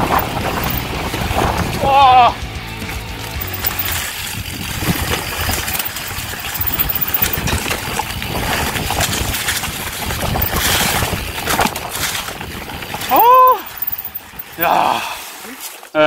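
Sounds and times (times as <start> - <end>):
bike rattling and knocking: 0.0 - 14.8
tyres rolling over leaves and dirt: 0.0 - 14.8
wind on microphone: 3.9 - 14.7.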